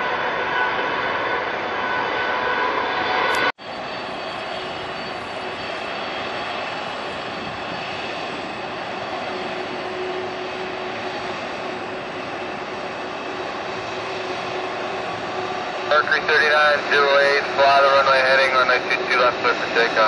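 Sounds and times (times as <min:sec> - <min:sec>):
jet engines rushing: 0:00.0 - 0:20.0.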